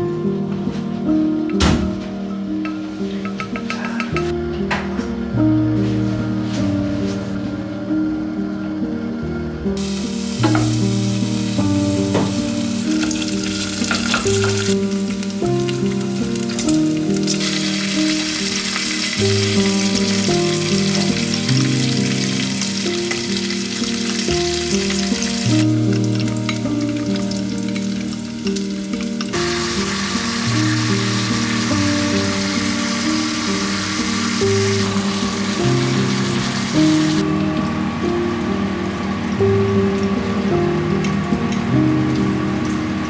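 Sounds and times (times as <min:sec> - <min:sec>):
background music: 0:00.0 - 0:43.0
steak sizzling in a frying pan: 0:09.8 - 0:37.2.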